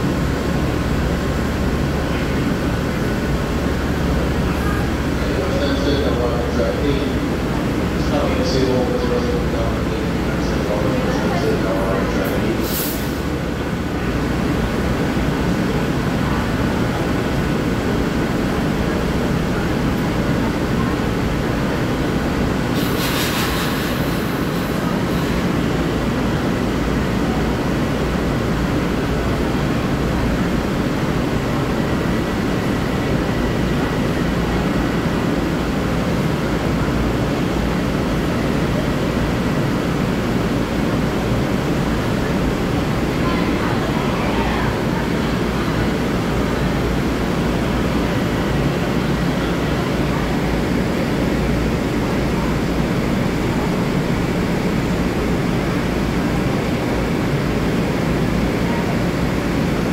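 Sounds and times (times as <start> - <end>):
brief hiss: 22.8 - 24.8.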